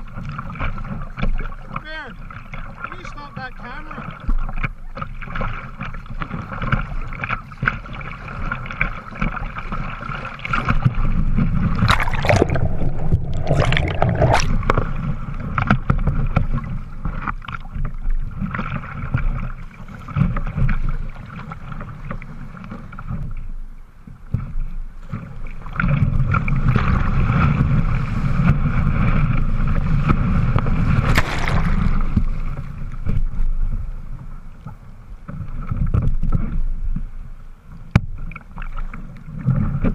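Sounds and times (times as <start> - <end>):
sharp water splashes: 0.0 - 20.6, 25.6 - 33.4
water rushing along kayak hull: 0.0 - 39.9.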